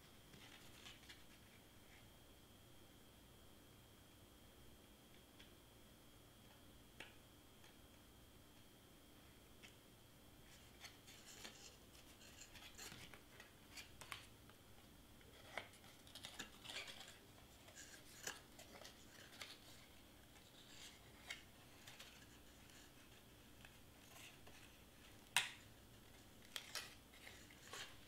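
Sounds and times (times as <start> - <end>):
cardstock clicking and crinkling: 15.2 - 28.0.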